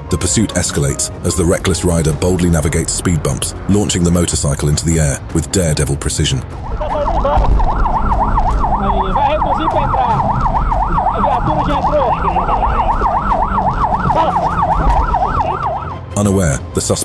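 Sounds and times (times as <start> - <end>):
engine and road rumble: 0.0 - 16.8
police siren yelping: 6.4 - 16.2.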